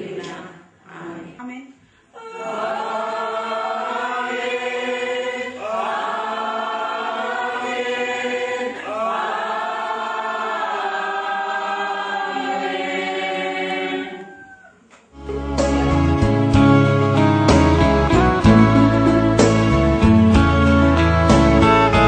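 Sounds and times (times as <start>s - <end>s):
congregation singing: 0.0s - 1.5s, 2.2s - 14.3s.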